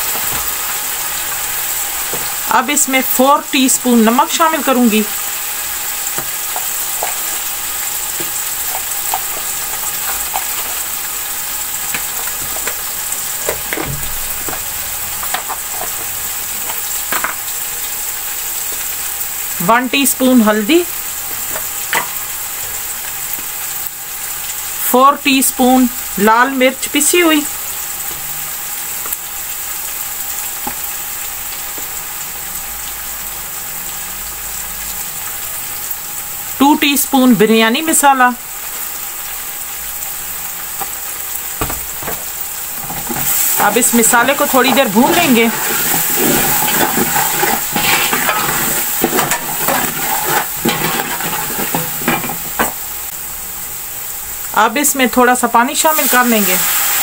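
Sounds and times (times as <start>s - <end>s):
masala sizzling in a pot: 0.0s - 57.0s
metal spoon scraping a pot: 42.8s - 52.8s.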